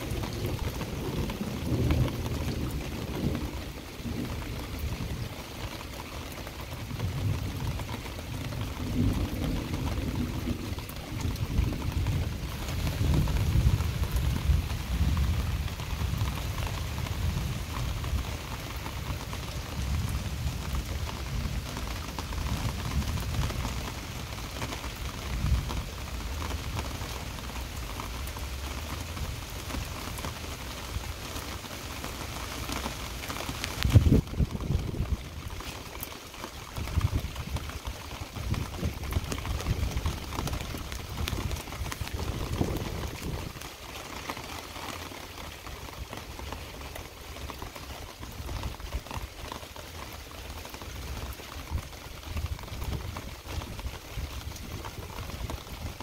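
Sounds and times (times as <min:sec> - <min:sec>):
low thunder rumbling: 0:00.0 - 0:05.6, 0:06.8 - 0:26.8, 0:33.8 - 0:35.9, 0:36.8 - 0:43.6
heavy rain pouring: 0:00.0 - 0:56.0.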